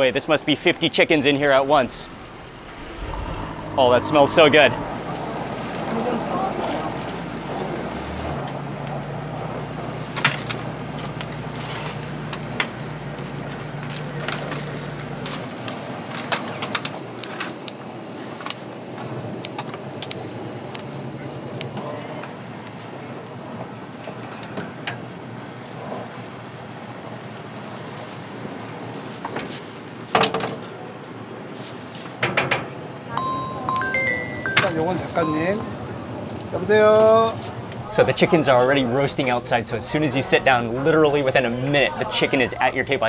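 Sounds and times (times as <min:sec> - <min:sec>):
rotisserie sizzling and crackling: 0:00.0 - 0:16.5, 0:22.4 - 0:29.9
traffic: 0:00.0 - 0:30.0, 0:30.7 - 0:43.0
low hum: 0:00.6 - 0:09.8.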